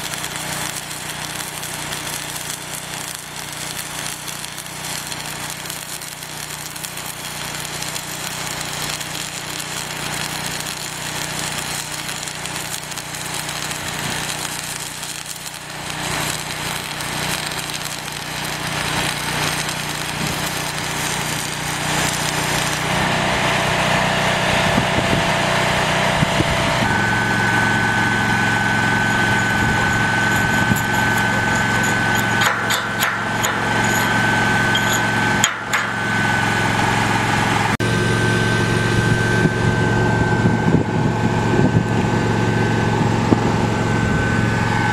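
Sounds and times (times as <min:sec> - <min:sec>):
welding arc crackling and hissing: 0:00.0 - 0:23.7, 0:26.7 - 0:38.0
engine hum: 0:00.0 - 0:44.9
high steady whine: 0:26.2 - 0:44.9.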